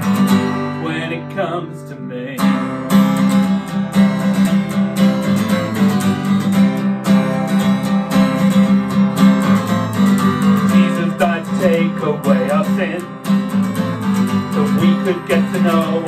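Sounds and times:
acoustic guitar strumming: 0.0s - 16.0s
person singing: 0.6s - 2.7s, 10.6s - 13.2s, 14.4s - 16.0s.

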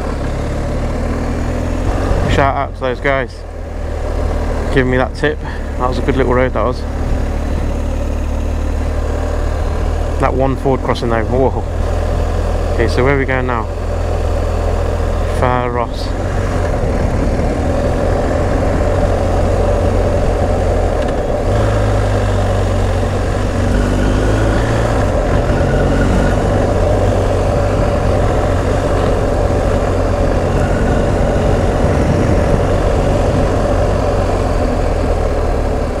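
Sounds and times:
motorcycle engine running: 0.0s - 36.0s.

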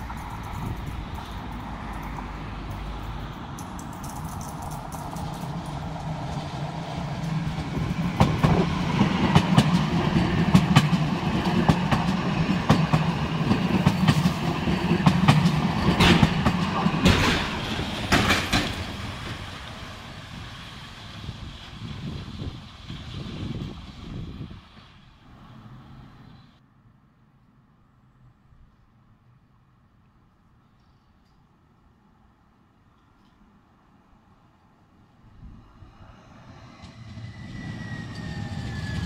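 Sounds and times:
tram running hum: 0.0s - 26.6s, 35.0s - 39.0s
wheel clacks over track: 9.2s - 19.0s.

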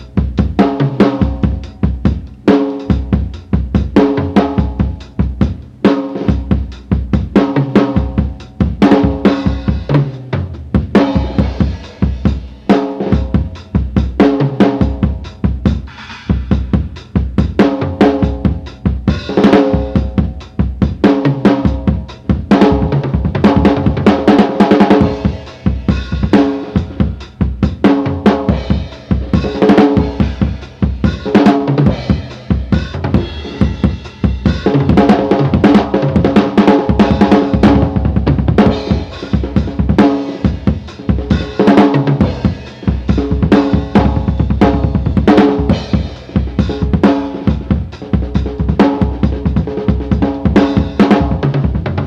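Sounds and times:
drum kit steady beat: 0.0s - 52.0s.

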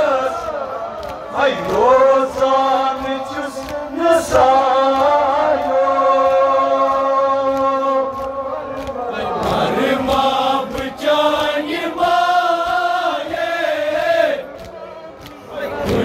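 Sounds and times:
man chanting over loudspeaker: 0.0s - 13.6s.

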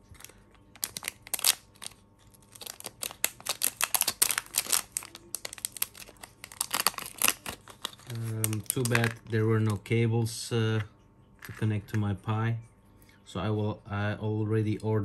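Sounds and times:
plastic bag crinkling and tearing: 0.0s - 9.8s.

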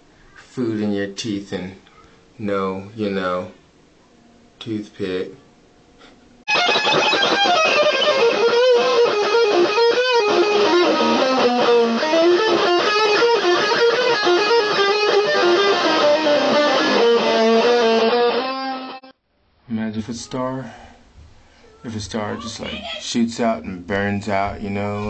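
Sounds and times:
electric guitar playing fast notes: 6.5s - 19.1s.

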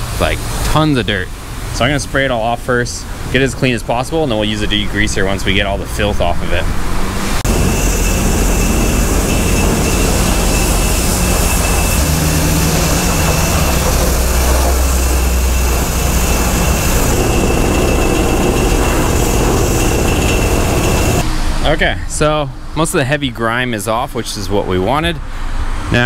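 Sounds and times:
low drone: 4.1s - 22.8s
thin steady whine: 7.3s - 24.8s
pressure washer spray hissing: 7.5s - 21.2s.

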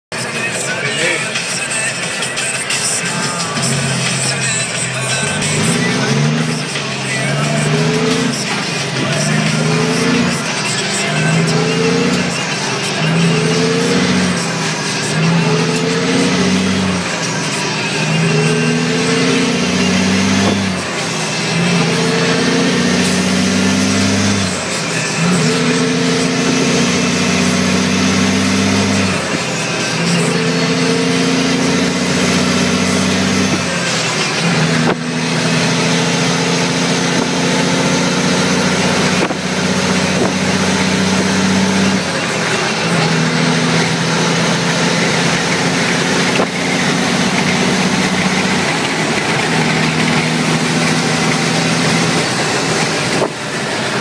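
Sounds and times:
diesel truck engine revving: 0.0s - 54.0s.

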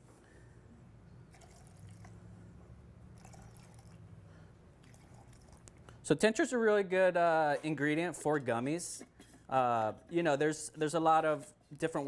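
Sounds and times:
low steady hum: 0.0s - 7.1s
liquid trickling into a cup: 1.3s - 2.3s, 3.0s - 4.2s, 4.8s - 5.9s.

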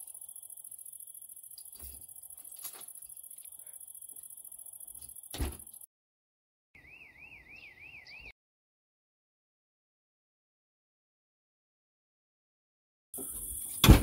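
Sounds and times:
crickets chirping: 0.0s - 5.9s, 13.2s - 14.0s.

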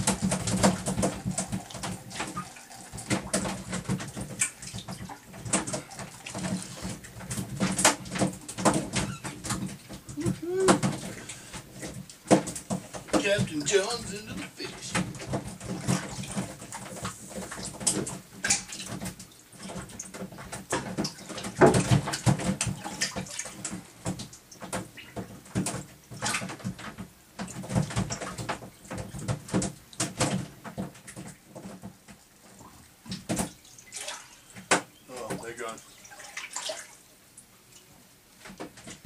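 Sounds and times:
seawater splashing and sloshing: 0.0s - 39.0s.

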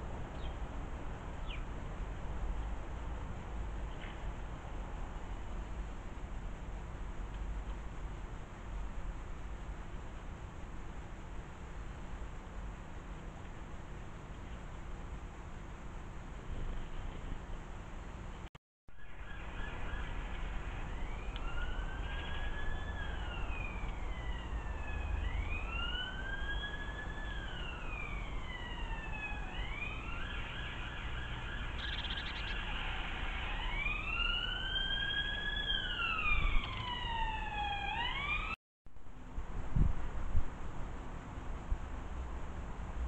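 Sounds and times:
emergency vehicle siren wailing: 19.0s - 38.6s.

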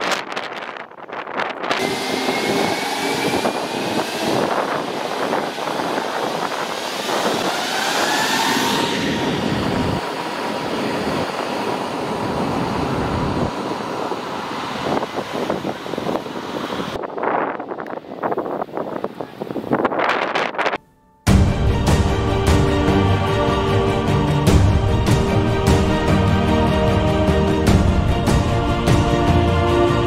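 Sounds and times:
jet blast buffeting microphone: 0.0s - 20.6s
jet engines spooling up: 1.6s - 18.1s.

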